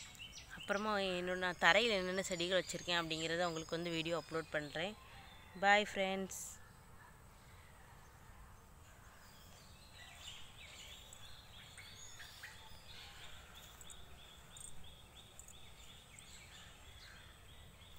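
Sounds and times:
bird chirps: 9.0s - 17.9s.

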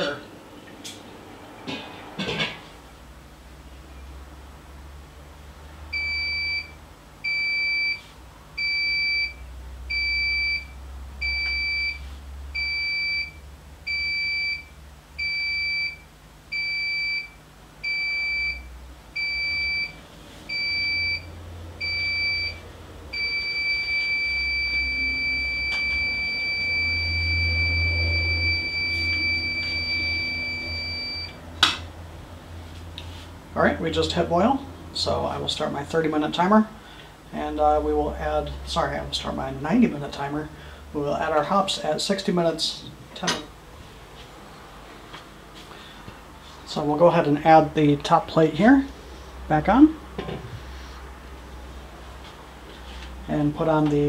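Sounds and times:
continuous buzzer tone: 12.6s - 31.4s
electronic buzzer beeping: 23.2s - 31.4s.

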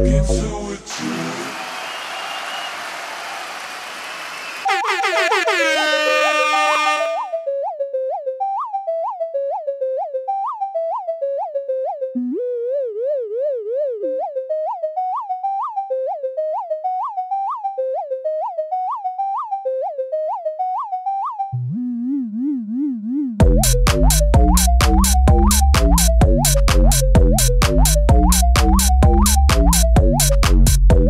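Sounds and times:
synthesizer lead notes: 4.4s - 7.5s.

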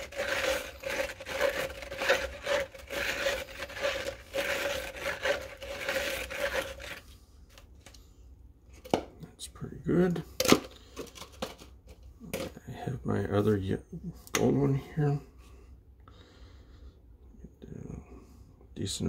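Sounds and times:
stick scraping inside plastic cup: 0.0s - 7.7s.

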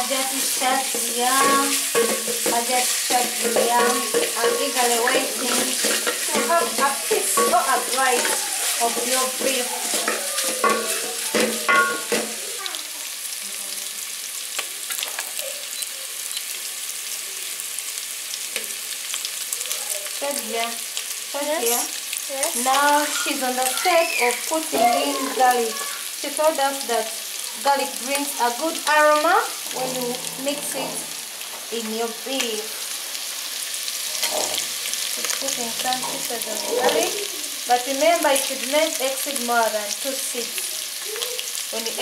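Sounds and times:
meat sizzling in a pot: 0.0s - 42.0s
wooden spoon stirring: 0.1s - 12.4s
person talking: 21.4s - 27.0s, 27.6s - 31.1s, 35.4s - 39.7s.

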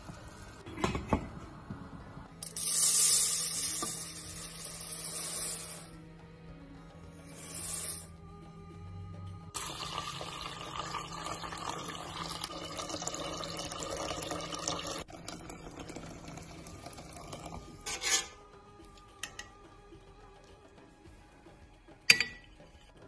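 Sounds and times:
background music: 0.0s - 23.0s
tap water running into pot: 9.6s - 17.7s.

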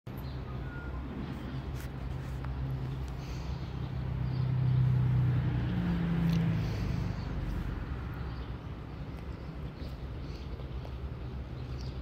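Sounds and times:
faint bird chirps: 0.1s - 1.6s
vehicle passing by: 0.4s - 12.0s.

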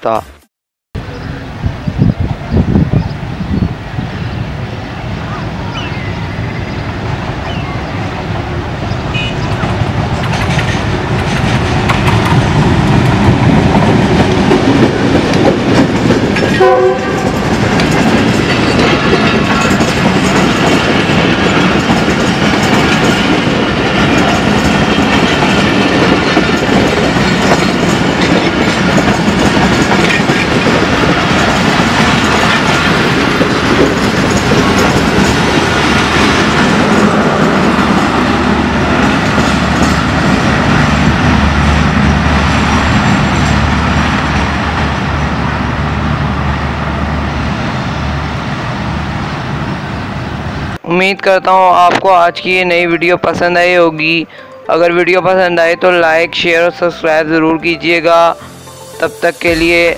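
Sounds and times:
diesel locomotive engine: 1.0s - 51.9s
wheels clacking over rail joints: 8.8s - 45.0s
train horn: 9.1s - 9.5s, 16.5s - 17.5s.

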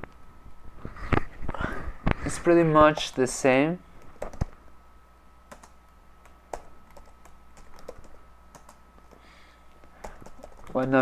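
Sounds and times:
faint high hum: 0.0s - 11.0s.

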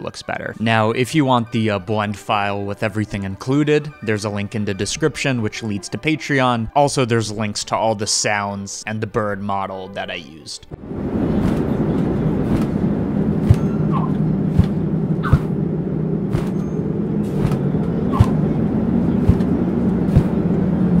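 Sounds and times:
rush of wind: 10.7s - 21.0s
bird wing flaps: 11.2s - 12.8s, 13.4s - 15.6s, 16.3s - 16.6s, 17.3s - 18.4s, 19.2s - 20.4s.

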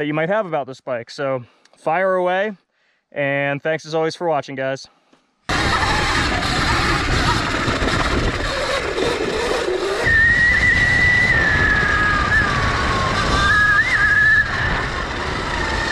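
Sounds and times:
electric motor and chain whine: 5.5s - 15.9s
wind and tyre noise: 5.5s - 15.9s.

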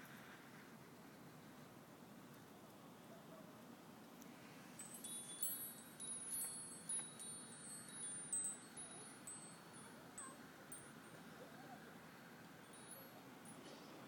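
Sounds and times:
wind chime tinkling: 4.8s - 11.2s, 12.6s - 13.8s.

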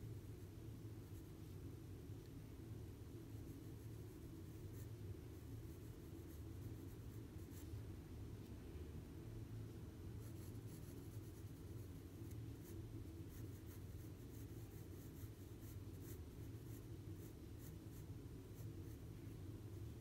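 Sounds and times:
pencil scratching on paper: 10.2s - 20.0s.

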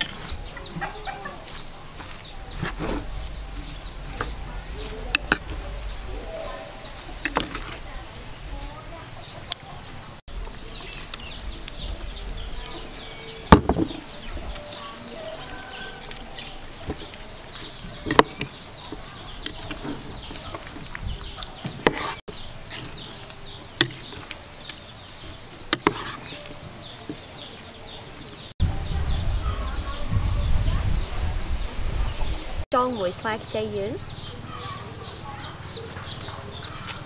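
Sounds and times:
birds peeping: 0.0s - 37.0s
utensils tossing salad in bowl: 25.3s - 27.2s.

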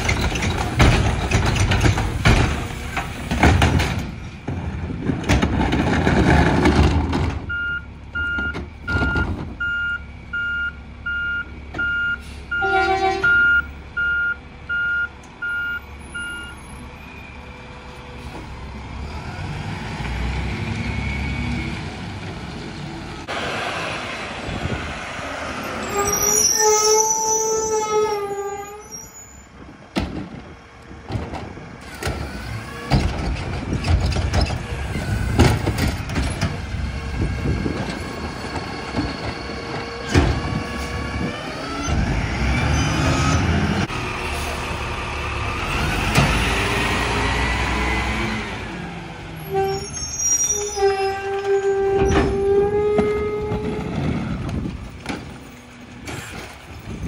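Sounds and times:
truck engine and hydraulics: 0.0s - 57.0s
backup alarm beeping: 7.5s - 12.7s, 13.3s - 16.6s
brakes squealing: 15.3s - 23.3s, 24.6s - 29.7s, 31.8s - 57.0s.

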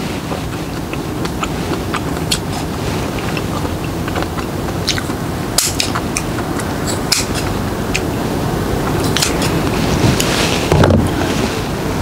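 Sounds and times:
steady low rumble: 0.0s - 12.0s
scissors snipping: 6.9s - 8.1s.

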